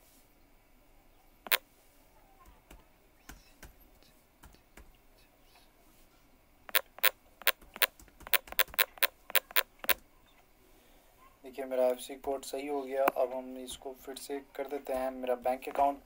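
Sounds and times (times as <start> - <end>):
phone keyboard taps: 6.7 - 10.0
sharp typing clicks: 6.7 - 10.0.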